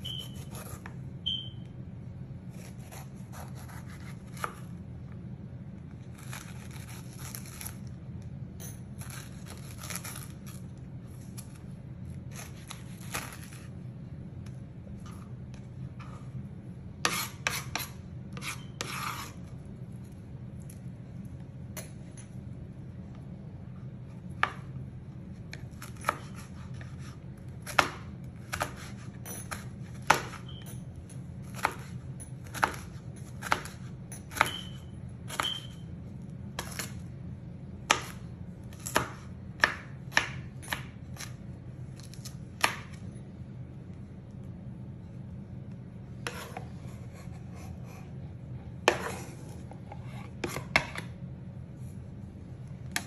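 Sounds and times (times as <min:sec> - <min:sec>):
knife chopping on plastic board: 0:17.0 - 0:19.3, 0:25.5 - 0:30.4, 0:32.5 - 0:34.7, 0:37.9 - 0:38.2, 0:38.9 - 0:41.4, 0:42.0 - 0:43.0, 0:48.8 - 0:51.1.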